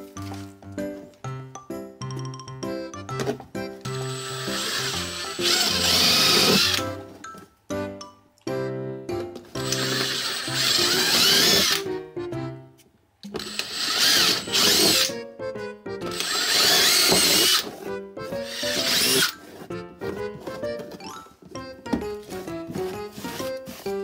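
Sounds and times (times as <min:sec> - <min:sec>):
cordless drill boring through plastic: 0:03.9 - 0:06.8, 0:09.6 - 0:11.9, 0:13.4 - 0:15.1, 0:16.1 - 0:17.8, 0:18.4 - 0:19.4.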